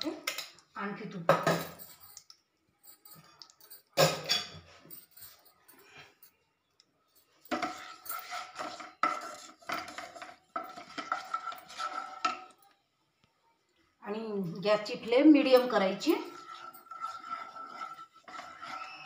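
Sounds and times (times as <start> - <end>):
wooden spatula scraping pan: 7.5 - 12.6, 15.0 - 19.0
utensil clanking on pan: 15.6 - 19.0.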